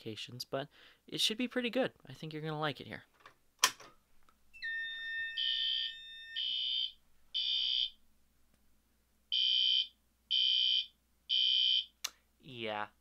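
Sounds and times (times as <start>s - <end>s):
fire alarm horn pulses: 4.6s - 7.9s
fire alarm tone: 4.6s - 8.0s, 9.3s - 11.9s.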